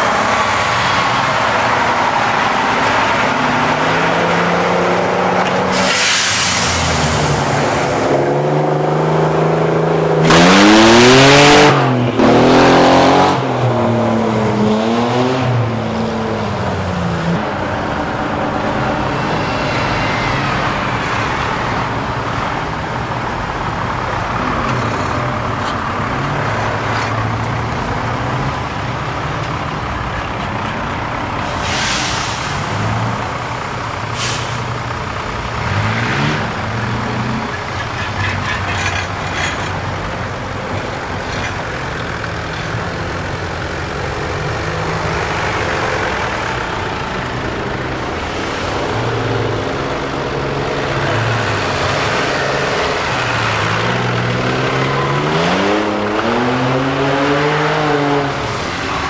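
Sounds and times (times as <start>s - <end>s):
engine revving hard: 3.2s - 13.8s, 35.5s - 37.6s, 50.7s - 59.0s
brief hiss: 5.7s - 7.4s.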